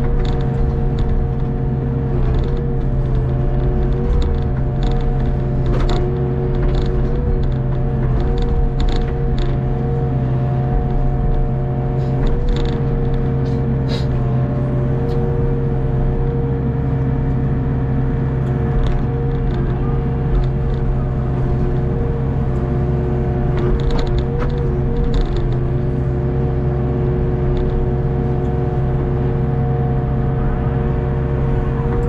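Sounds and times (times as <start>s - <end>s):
excavator bucket clanks: 0.0s - 9.9s, 10.8s - 14.4s, 18.5s - 25.9s
excavator engine drone: 0.0s - 32.0s
steady whine: 0.0s - 32.0s.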